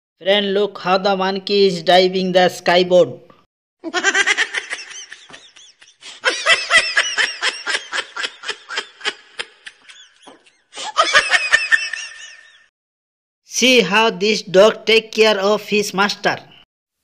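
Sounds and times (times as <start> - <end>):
high-pitched giggling laughter: 3.8 - 12.7.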